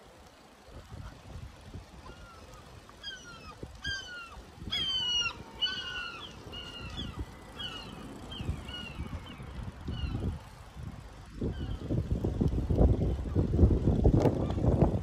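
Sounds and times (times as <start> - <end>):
gulls calling: 2.0 - 10.5.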